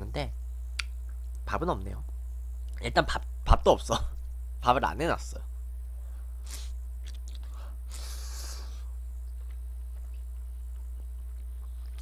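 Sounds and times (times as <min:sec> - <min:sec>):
low electrical hum: 0:00.0 - 0:12.0
wet chewing: 0:09.2 - 0:12.0.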